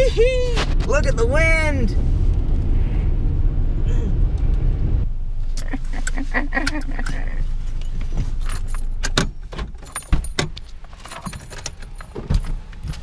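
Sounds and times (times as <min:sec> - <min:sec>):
low car rumble: 0:00.0 - 0:13.0
seat belt buckles clicking: 0:06.0 - 0:13.0
keys jingling: 0:07.8 - 0:13.0.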